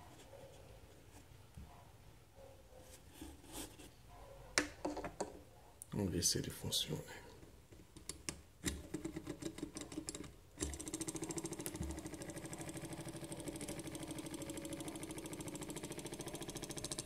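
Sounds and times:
flywheel and propeller hum: 10.9 - 17.0.

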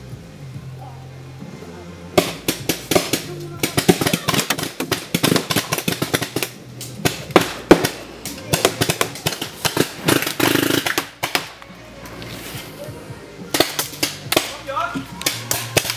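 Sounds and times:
paintball markers firing: 2.2 - 11.6, 13.5 - 15.9.

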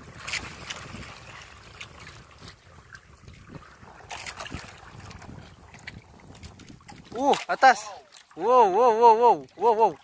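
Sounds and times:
wind rumbling on microphone: 0.0 - 7.8
water lapping against boat hull: 0.0 - 10.0
short splashes: 3.4 - 10.0.

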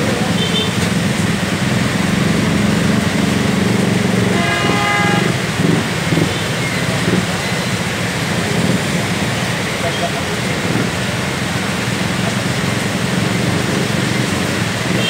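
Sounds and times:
heavy rain hissing: 0.0 - 15.0
vehicle engines running: 0.0 - 15.0
car horn: 4.2 - 6.4.

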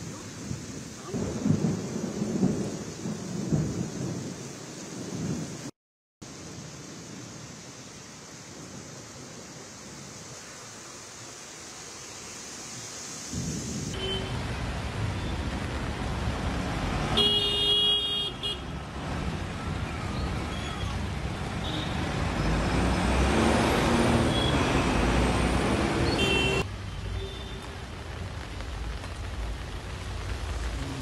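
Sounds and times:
heavy rain: 0.0 - 31.0
road traffic: 6.2 - 31.0
car horn: 14.0 - 14.4, 17.1 - 18.8, 21.6 - 22.0, 26.0 - 27.7.

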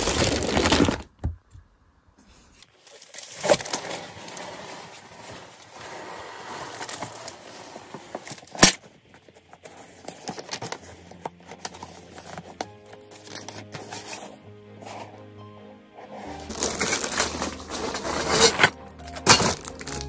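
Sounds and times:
paper leaflet rustling: 2.7 - 15.1, 16.2 - 20.0
cardboard box handling noise: 2.8 - 15.1, 16.2 - 20.0
soft background music: 9.3 - 20.0.

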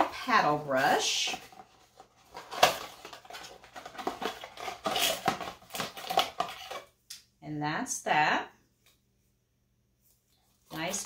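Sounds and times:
handling a paperboard box: 0.0 - 6.9.

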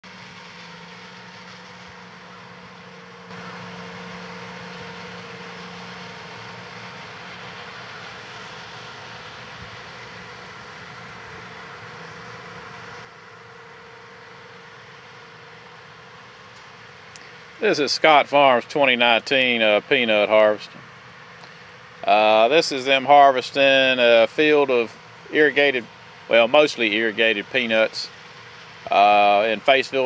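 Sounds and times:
farm machinery drone: 0.0 - 30.0.

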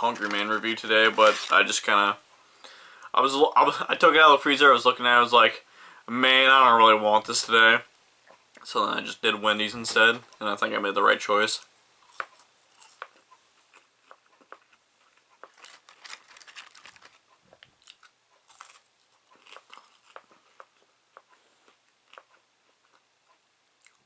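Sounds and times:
person chewing fries: 12.0 - 24.0.

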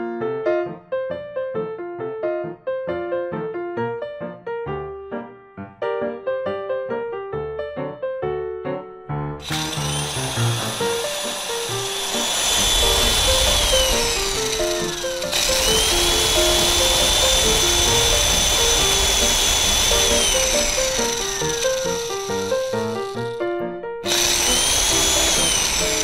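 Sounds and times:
piano music: 0.0 - 26.0
immersion blender motor whining: 9.4 - 23.4, 24.1 - 26.0.

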